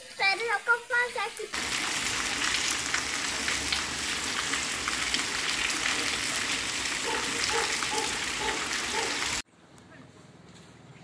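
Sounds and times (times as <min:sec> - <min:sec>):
steady rain falling: 0:01.4 - 0:09.4.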